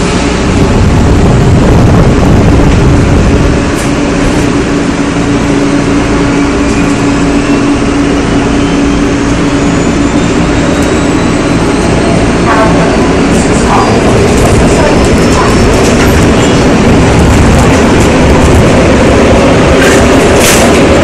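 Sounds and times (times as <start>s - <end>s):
train rumbling: 0.0s - 21.0s.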